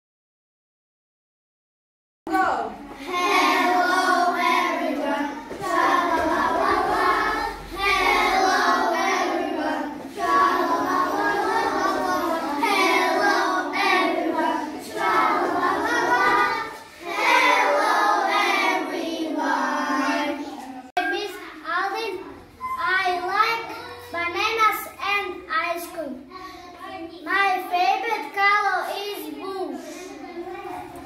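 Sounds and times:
children singing in unison: 2.9s - 20.9s.

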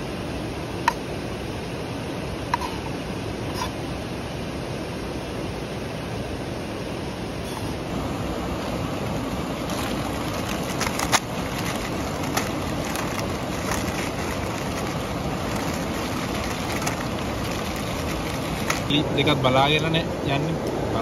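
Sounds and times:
steady rushing noise: 0.0s - 21.0s
plastic packets crinkling and tearing: 9.6s - 18.9s.

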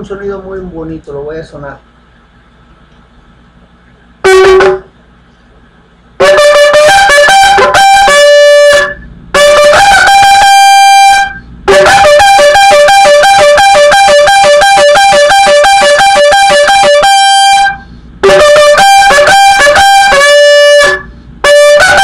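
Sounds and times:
shofar blown in calls: 4.2s - 5.0s, 6.2s - 22.0s.

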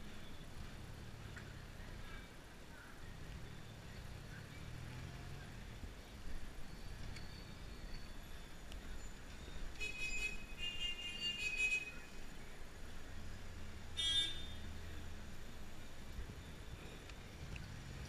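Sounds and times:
engine and road rumble: 0.0s - 18.0s
vehicle horns honking: 9.8s - 12.1s, 14.0s - 14.7s.

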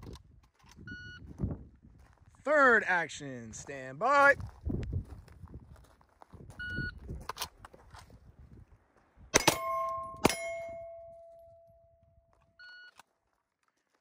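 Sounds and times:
short electronic beep: 6.6s - 7.0s
pistol shots: 9.3s - 11.0s
steel target ringing: 9.4s - 11.8s.

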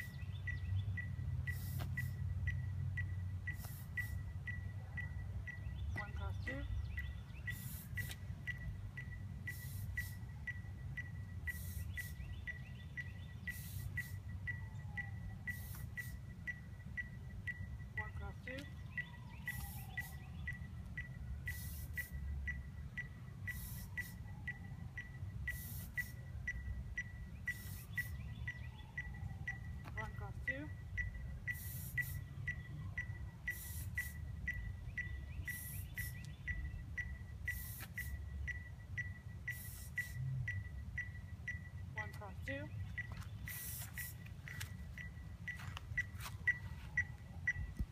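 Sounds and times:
faint high chirp: 0.0s - 47.9s
steady low rumble: 0.0s - 47.9s
short hissing bursts: 1.5s - 2.1s, 3.6s - 4.2s, 7.5s - 8.1s, 9.5s - 10.2s, 11.5s - 12.2s, 13.5s - 14.2s, 21.5s - 22.1s, 23.5s - 24.2s, 31.6s - 32.2s, 39.5s - 40.2s, 43.5s - 44.2s.

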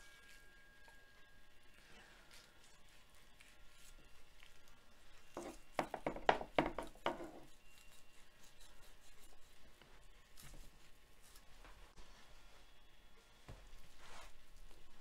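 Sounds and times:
faint handling sounds: 7.0s - 15.0s.

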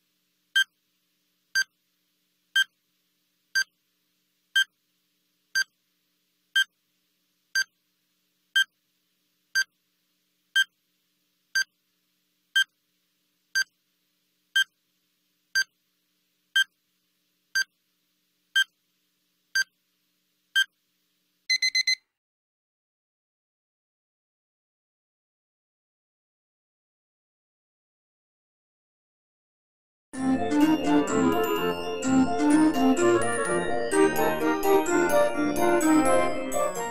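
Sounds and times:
countdown timer beeping: 21.5s - 22.0s
higher alarm beeps: 21.5s - 22.0s.

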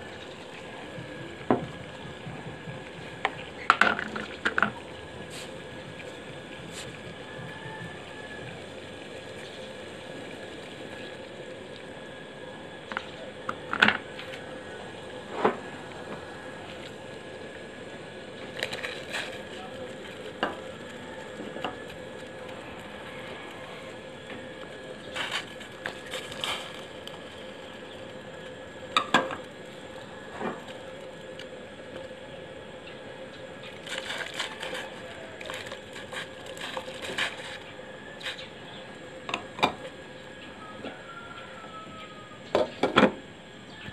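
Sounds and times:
faint steady hum: 0.0s - 43.9s
water boiling in a pot: 0.0s - 43.9s.

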